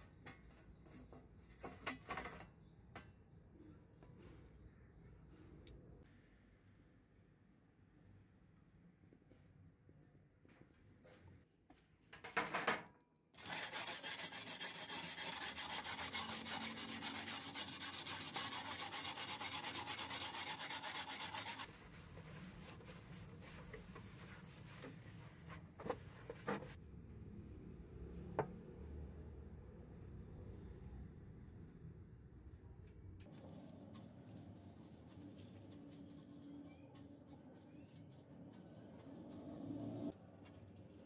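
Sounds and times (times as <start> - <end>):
wire brush scrubbing metal: 13.4 - 26.8, 33.3 - 39.4.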